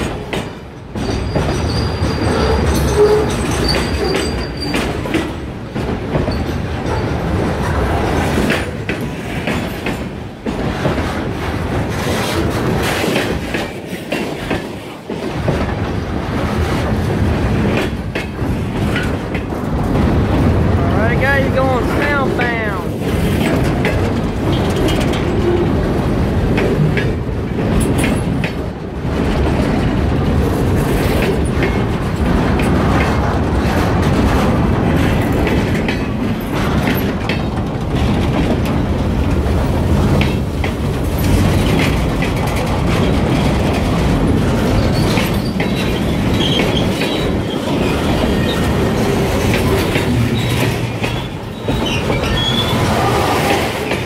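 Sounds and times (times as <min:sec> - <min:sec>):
train wheels rumbling on rail: 0:00.0 - 0:54.0
wheel squeals: 0:01.0 - 0:04.9, 0:44.8 - 0:48.7, 0:50.3 - 0:53.2.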